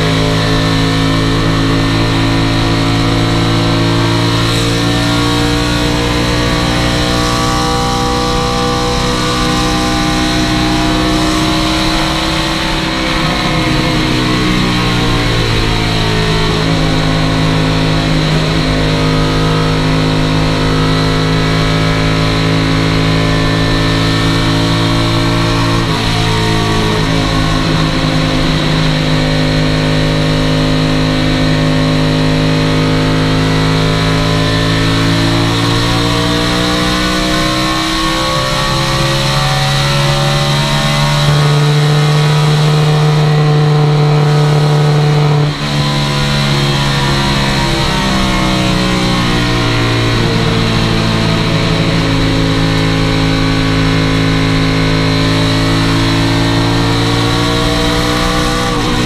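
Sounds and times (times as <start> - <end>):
race car engine at full throttle: 0.0 - 59.0
wind and road noise: 0.0 - 59.0.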